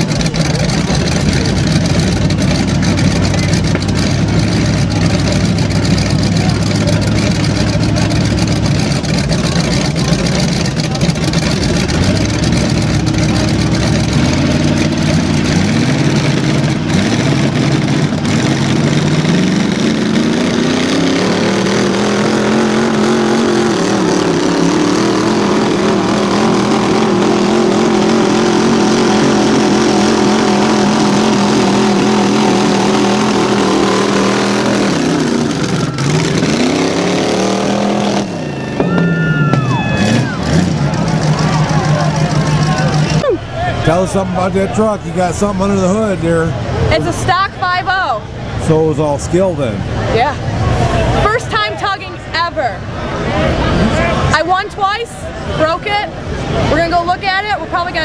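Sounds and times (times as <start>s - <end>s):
wheels spinning in mud: 0.0s - 44.0s
truck engines revving: 0.0s - 58.0s.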